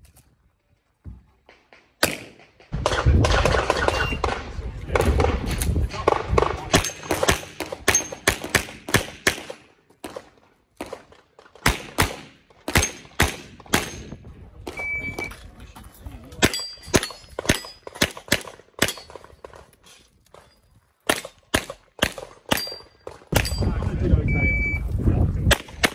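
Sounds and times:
pistol shots: 0:02.0 - 0:14.1, 0:16.4 - 0:19.6, 0:21.1 - 0:23.6, 0:25.5 - 0:25.9.

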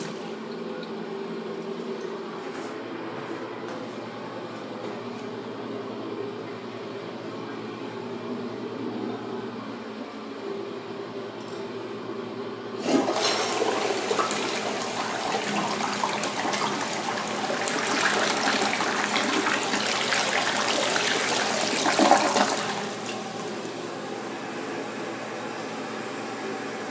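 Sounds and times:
toilet flushing: 0:00.0 - 0:01.8, 0:12.8 - 0:26.9.

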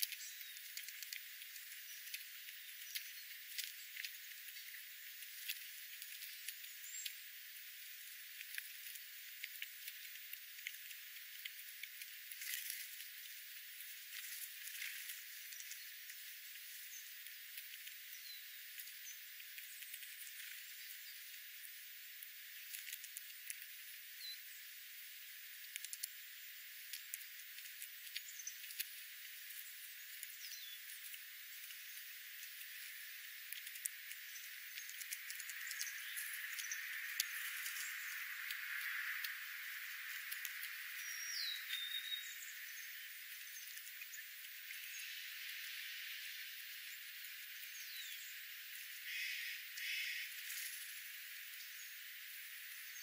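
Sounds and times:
birds pecking seed on gravel: 0:00.0 - 0:53.0
high bird chirps: 0:41.0 - 0:42.9.

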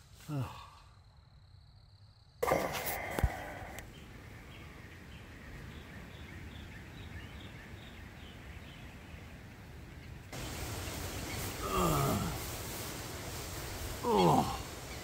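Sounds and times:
background hiss: 0:00.0 - 0:15.0
bird chirping: 0:02.5 - 0:12.1.

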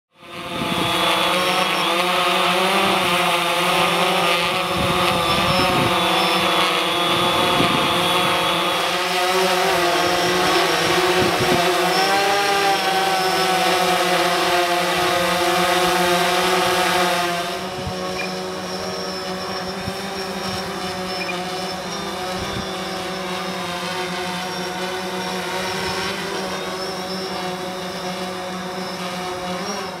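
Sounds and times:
drone propellers whining: 0:00.2 - 0:30.0
wind buffeting microphone: 0:00.5 - 0:01.2, 0:04.5 - 0:08.7, 0:10.2 - 0:11.9.

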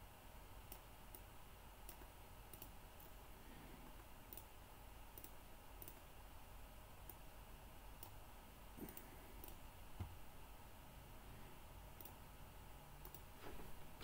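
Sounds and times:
low steady hum: 0:00.0 - 0:14.0
computer mouse clicks: 0:00.6 - 0:03.2, 0:03.8 - 0:04.5, 0:05.1 - 0:06.1, 0:08.0 - 0:08.2, 0:08.8 - 0:09.6, 0:12.0 - 0:12.2, 0:13.0 - 0:13.3.

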